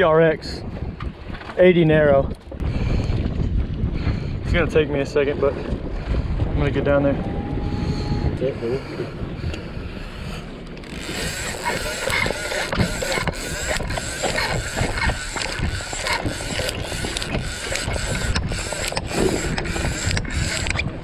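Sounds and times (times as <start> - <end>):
wind buffeting microphone: 0.0 - 21.0
fishing reel handle cranking: 9.5 - 21.0.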